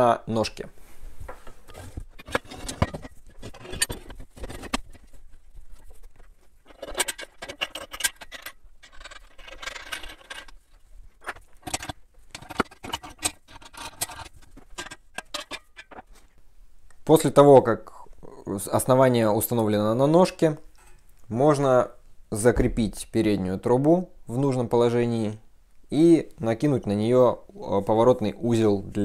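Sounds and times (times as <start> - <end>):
metal tubes clinking and scraping: 1.7 - 16.3.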